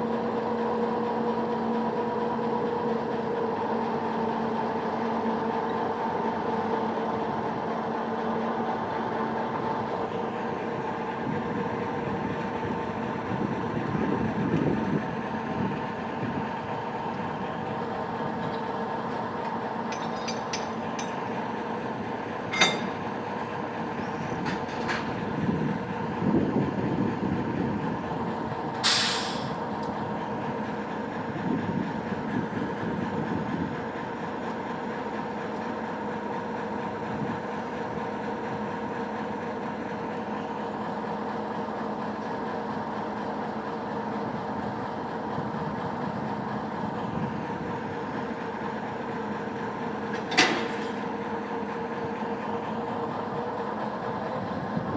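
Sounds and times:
diesel locomotive engine drone: 0.0s - 54.9s
sharp metallic clank: 22.5s - 23.0s
air brake hiss: 28.8s - 29.6s.

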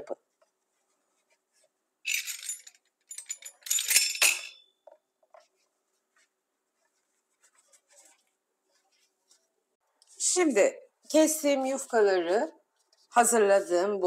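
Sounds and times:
pastry sheets rustling and crinkling: 0.0s - 2.0s, 5.1s - 14.0s.

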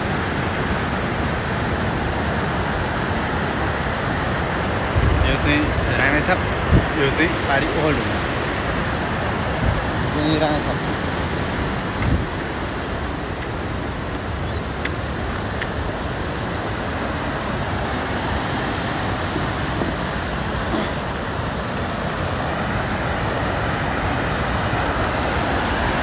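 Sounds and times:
fast river rushing: 0.0s - 26.0s.

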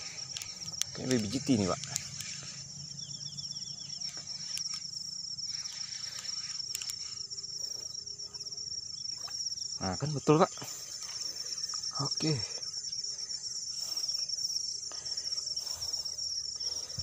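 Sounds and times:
faint clicks: 0.0s - 2.5s, 4.0s - 4.9s, 5.5s - 7.9s
insects trilling: 0.0s - 17.0s.

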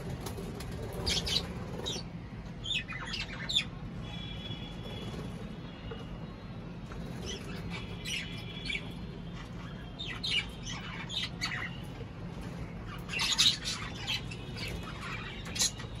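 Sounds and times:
cockatiels squawking and chirping: 0.0s - 3.7s, 6.9s - 16.0s.

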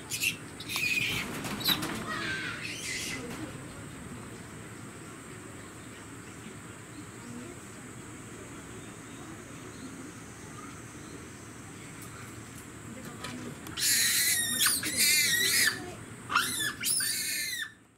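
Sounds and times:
faint background murmur: 0.0s - 17.9s
monkey screaming: 2.1s - 3.2s, 13.8s - 17.8s.

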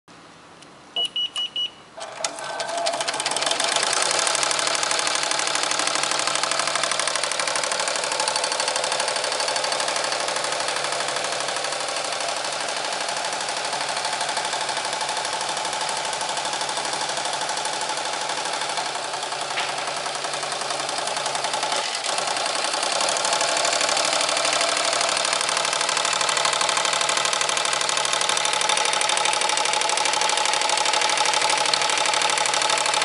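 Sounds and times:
short beeps: 1.0s - 1.8s
embroidery machine stitching: 2.0s - 33.0s.

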